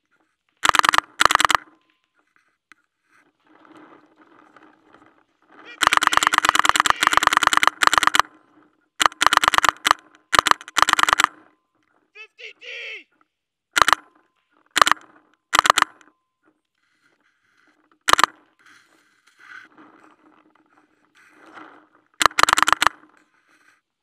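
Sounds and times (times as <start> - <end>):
paintball marker firing: 0.6 - 1.8, 5.7 - 8.4, 9.0 - 11.5, 13.8 - 14.1, 14.7 - 16.1, 18.1 - 18.4, 22.2 - 23.1.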